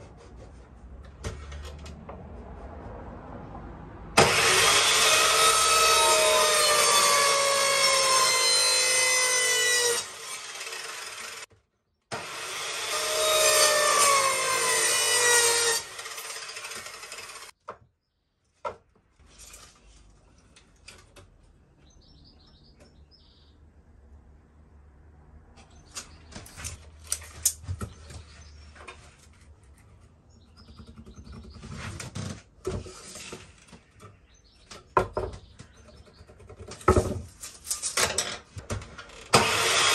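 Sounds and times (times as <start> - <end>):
mitre saw cutting wood: 4.2 - 11.5, 12.1 - 17.6, 39.2 - 39.9
knocks of wood being handled: 17.6 - 19.3.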